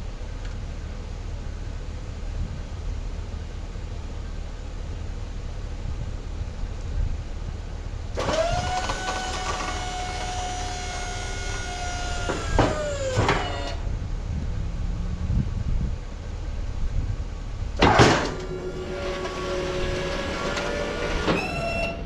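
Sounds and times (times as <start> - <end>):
truck engine idling: 0.0 - 22.0
plow clunks: 8.2 - 13.8, 17.8 - 22.0
hydraulic pump motor whining: 8.2 - 13.9, 17.8 - 22.0.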